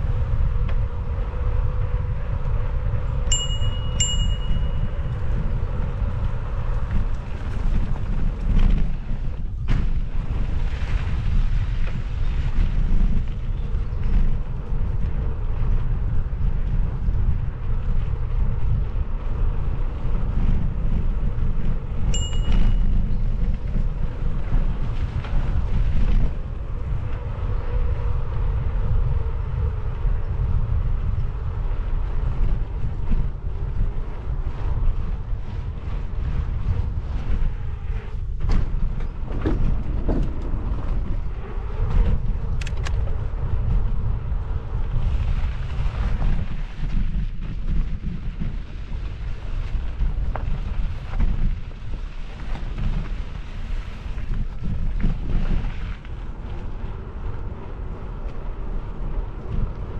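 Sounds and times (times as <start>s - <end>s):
mountain bike rolling on dirt: 0.0s - 59.9s
wind buffeting microphone: 0.0s - 59.9s
short metallic pings: 3.3s - 5.0s, 22.1s - 22.9s.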